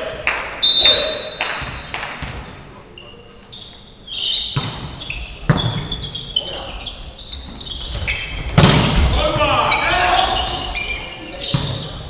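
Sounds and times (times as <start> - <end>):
shoes squeaking on floor: 3.0 - 12.0.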